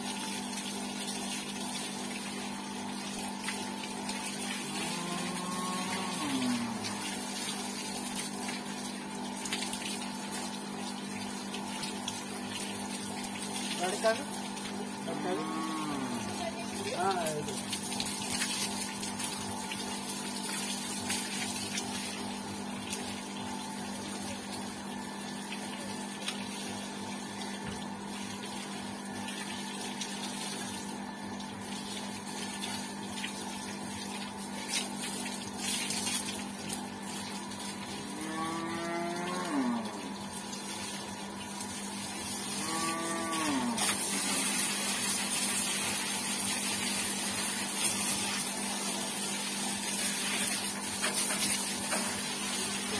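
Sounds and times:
electric water pump hum: 0:00.0 - 0:52.9
hose water splashing: 0:00.0 - 0:52.9.

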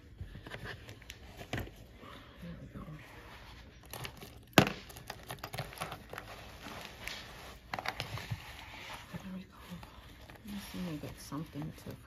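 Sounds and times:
paper crinkling: 0:03.3 - 0:12.0.

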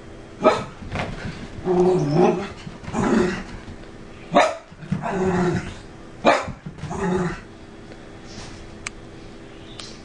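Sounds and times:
dog barking: 0:00.4 - 0:00.8, 0:04.3 - 0:04.7, 0:06.2 - 0:06.6
dog growly grumbles: 0:01.6 - 0:03.6, 0:04.8 - 0:05.9, 0:06.8 - 0:07.5.

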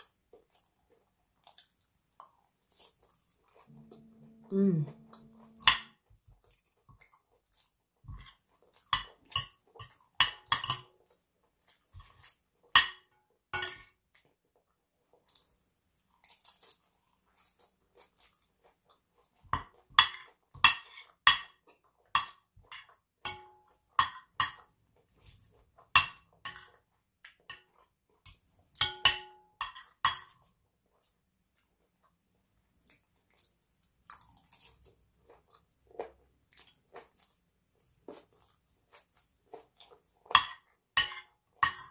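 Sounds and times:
close chewing: 0:00.0 - 0:04.0, 0:05.0 - 0:10.2, 0:14.1 - 0:22.1, 0:30.8 - 0:40.8
cutlery clinking on a plate: 0:05.2 - 0:06.0, 0:08.9 - 0:10.9, 0:12.8 - 0:14.0, 0:28.8 - 0:30.4, 0:40.4 - 0:41.9.

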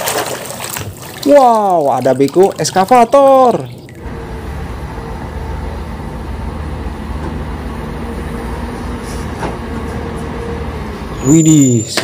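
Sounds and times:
excavator diesel engine running: 0:04.0 - 0:11.4.

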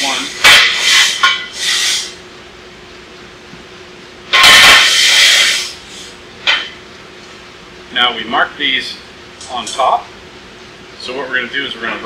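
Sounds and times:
steel tube scraping on metal: 0:04.4 - 0:05.7.

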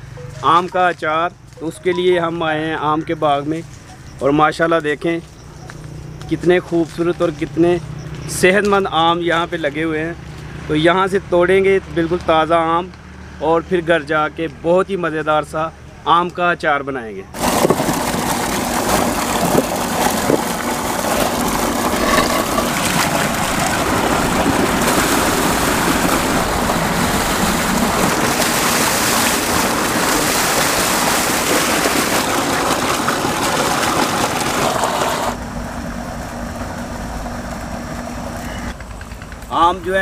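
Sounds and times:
water gushing from pipe: 0:17.4 - 0:35.4
water splashing over mangoes: 0:17.4 - 0:35.4.

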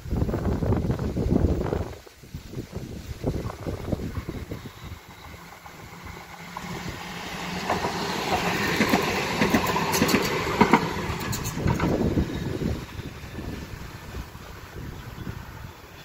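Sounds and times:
light rail car rumbling past: 0:03.0 - 0:16.0
wheels clicking over rail joints: 0:03.4 - 0:16.0.

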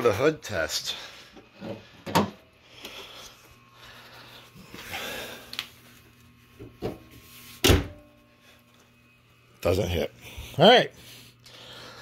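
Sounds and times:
person breathing: 0:00.8 - 0:06.0, 0:10.2 - 0:12.0.

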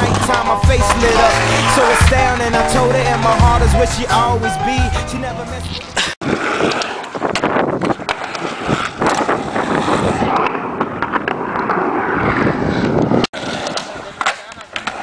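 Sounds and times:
skateboard clacks: 0:00.0 - 0:04.2, 0:05.7 - 0:15.0
skateboard wheels rolling on asphalt: 0:00.0 - 0:15.0
wind buffeting microphone: 0:05.9 - 0:14.2.

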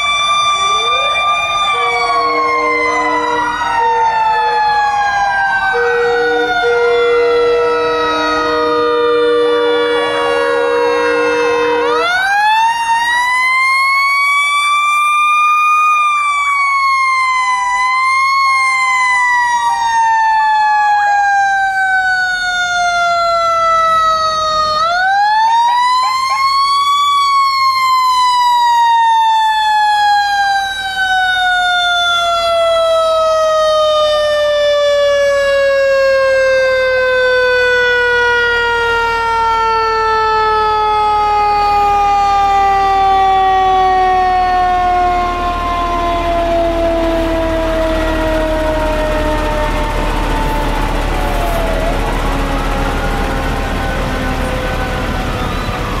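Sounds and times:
fire truck siren winding: 0:00.0 - 0:56.0
sirens wailing: 0:00.0 - 0:56.0
low horn blasts: 0:01.7 - 0:04.6, 0:05.7 - 0:12.2.

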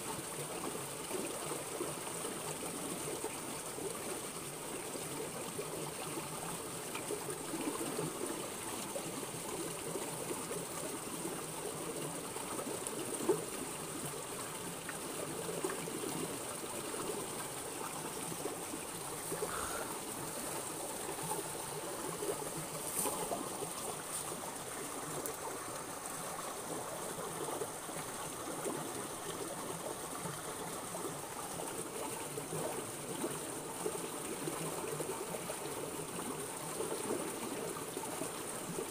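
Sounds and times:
stream trickling over stones: 0:00.0 - 0:38.9.

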